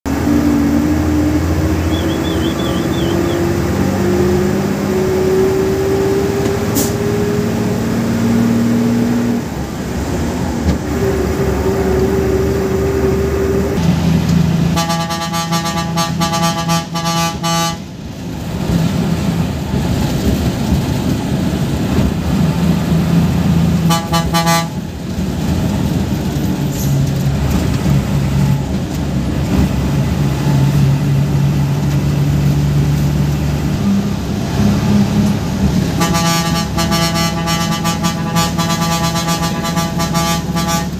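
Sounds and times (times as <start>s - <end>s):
bus engine running under load: 0.0s - 40.9s
horn stuttering toots: 0.3s - 3.9s, 14.6s - 17.9s, 23.8s - 24.8s, 35.8s - 40.9s.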